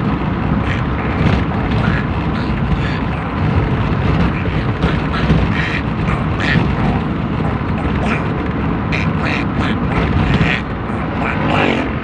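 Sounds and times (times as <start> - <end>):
car interior rumble: 0.0 - 12.0
man imitating duck quacks: 4.4 - 12.0.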